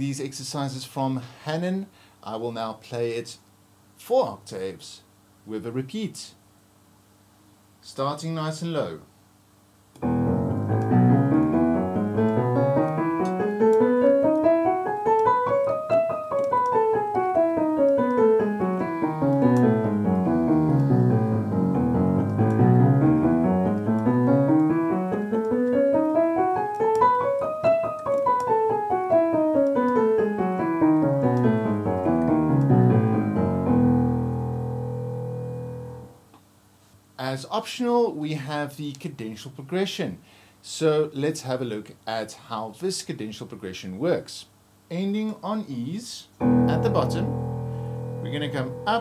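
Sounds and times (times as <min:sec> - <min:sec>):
piano playing scales: 0:10.0 - 0:36.2, 0:46.4 - 0:49.0.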